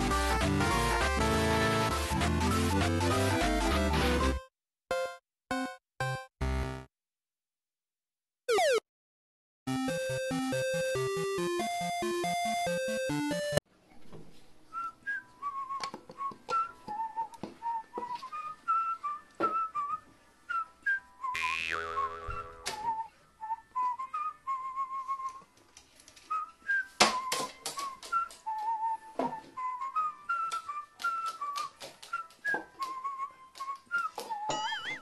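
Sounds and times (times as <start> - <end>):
falling pitched sound effect: 8.5 - 8.8
bouncy whistled melody: 14.7 - 25.5, 26.2 - 35.0.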